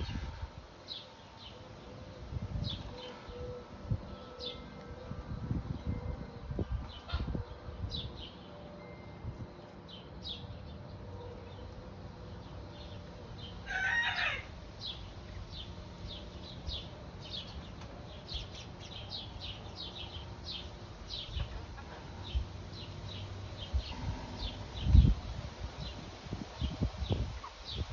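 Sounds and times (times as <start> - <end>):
harsh chicken call: 13.7 - 14.5
chicks chirping: 26.6 - 27.9.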